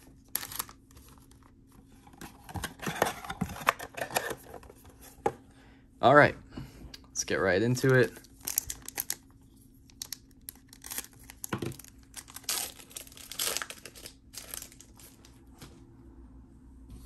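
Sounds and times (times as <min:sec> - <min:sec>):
packaging tearing and crinkling: 0:00.2 - 0:00.8, 0:08.2 - 0:09.2, 0:10.0 - 0:15.2.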